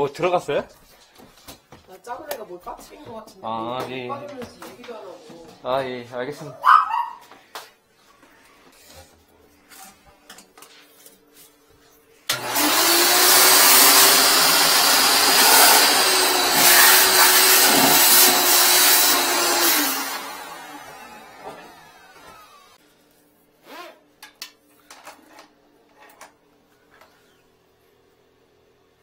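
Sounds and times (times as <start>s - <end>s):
wet-dry vacuum running: 12.3s - 22.8s.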